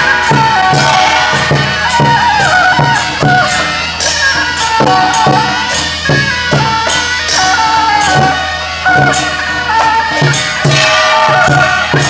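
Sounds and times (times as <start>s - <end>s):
reedy horn melody: 0.0s - 3.6s
steady drumbeat: 0.0s - 12.0s.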